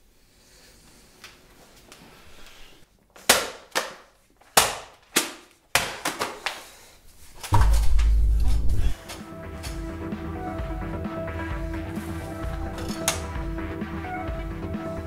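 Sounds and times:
deep low boom: 7.5s - 9.0s.

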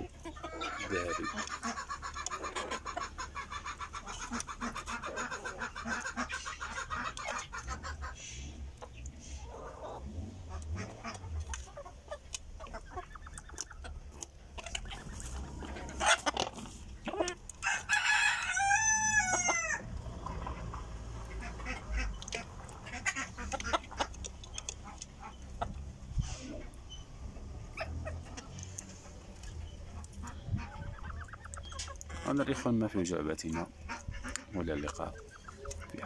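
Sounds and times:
chickens clucking: 0.0s - 36.0s
rooster crowing: 17.6s - 19.9s.

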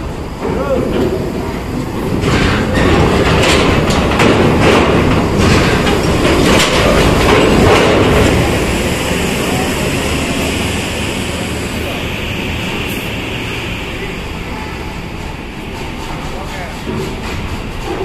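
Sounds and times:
low engine rumble: 0.0s - 18.0s
ramp plates clanking and rattling: 0.4s - 9.6s, 14.0s - 18.0s.

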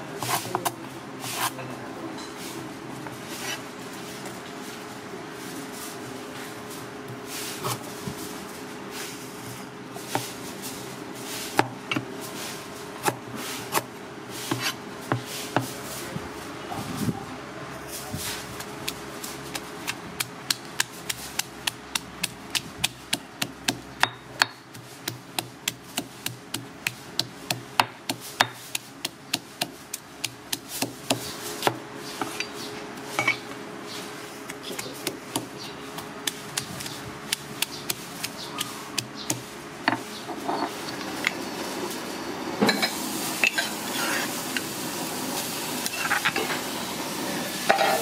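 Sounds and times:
stone pestle pounding in mortar: 20.2s - 31.8s.

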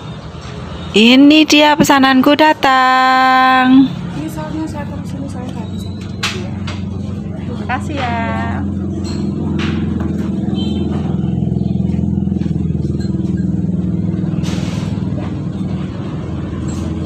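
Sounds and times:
vehicle engine running: 3.8s - 17.0s.

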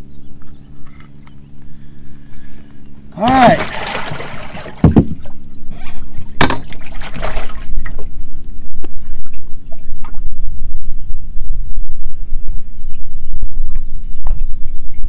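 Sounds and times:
water splashing and dripping: 3.2s - 5.3s, 6.5s - 8.0s
sharp knocks: 4.8s - 5.2s.

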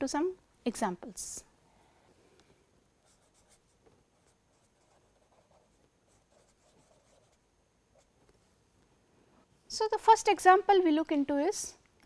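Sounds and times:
marker scratching on paper: 3.0s - 7.4s.

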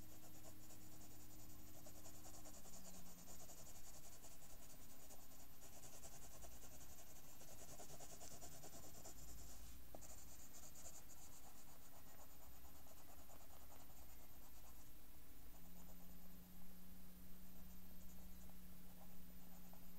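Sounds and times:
pencil scratching on paper: 0.1s - 14.8s.

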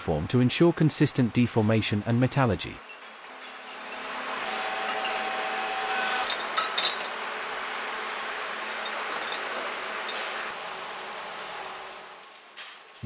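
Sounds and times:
industrial factory noise: 2.8s - 13.0s.

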